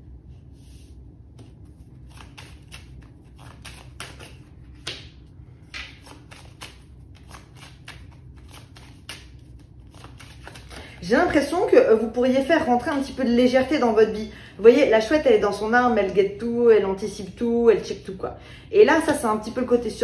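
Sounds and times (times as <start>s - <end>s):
cards being shuffled: 1.3s - 11.0s.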